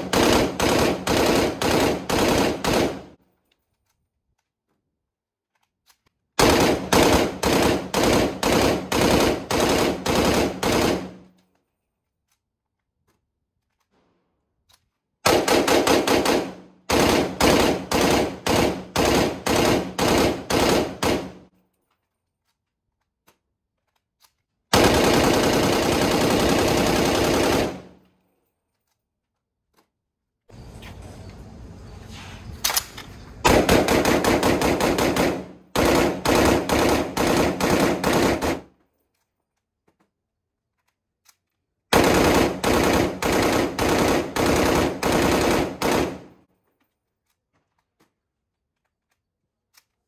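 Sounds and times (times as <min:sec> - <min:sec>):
rifle firing: 0:00.0 - 0:03.2, 0:06.4 - 0:11.4, 0:15.2 - 0:21.5, 0:24.7 - 0:28.0, 0:32.7 - 0:38.7, 0:41.9 - 0:46.5.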